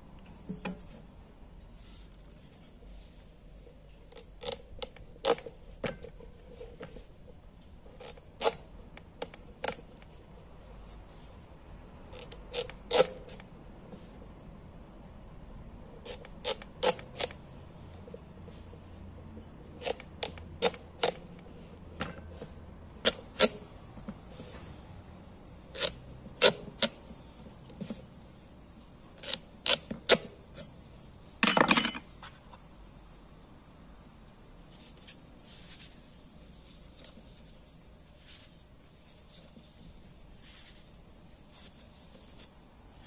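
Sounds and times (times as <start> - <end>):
knife cutting pumpkin rind: 12.1 - 13.4, 16.0 - 17.4, 19.6 - 21.5, 22.1 - 23.6, 25.7 - 27.0, 29.2 - 30.7.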